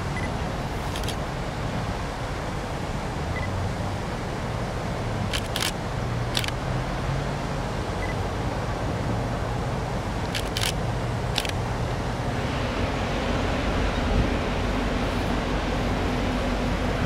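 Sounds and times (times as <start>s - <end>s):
diesel locomotive engine hum: 0.0s - 17.0s
sharp clicks: 5.3s - 5.8s, 6.4s - 6.6s, 10.2s - 11.6s.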